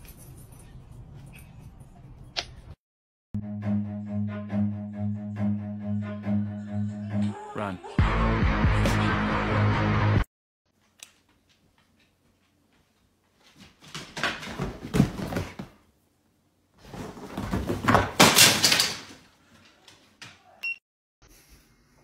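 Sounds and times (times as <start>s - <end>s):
dog scuffling and thudding on couch: 13.8s - 15.8s.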